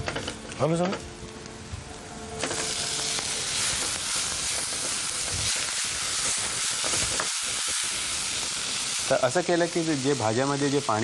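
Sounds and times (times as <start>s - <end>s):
vegetables sizzling in hot oil: 2.4s - 11.0s.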